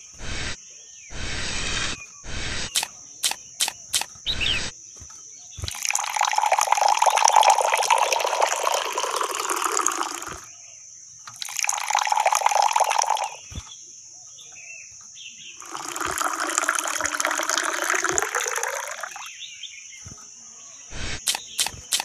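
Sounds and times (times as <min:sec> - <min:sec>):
water pouring and splashing: 0:05.6 - 0:10.5, 0:11.3 - 0:13.7, 0:15.6 - 0:19.3.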